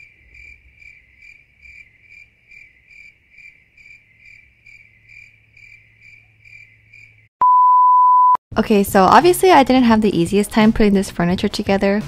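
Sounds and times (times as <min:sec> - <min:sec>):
faint cricket chirping: 0:00.0 - 0:07.3.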